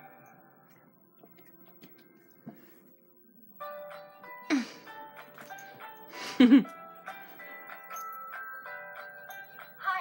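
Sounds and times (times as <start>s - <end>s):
chime-like background music: 4.9s - 10.0s.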